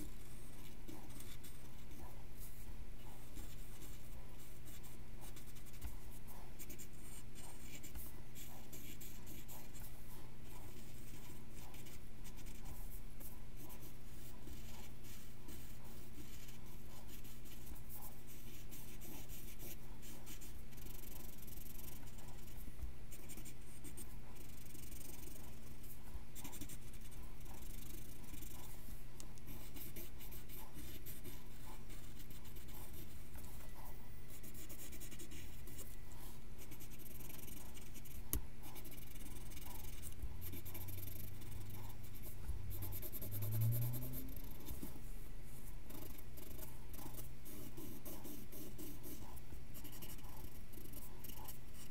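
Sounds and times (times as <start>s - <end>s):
pencil scratching on paper: 0.0s - 45.1s, 45.9s - 51.9s.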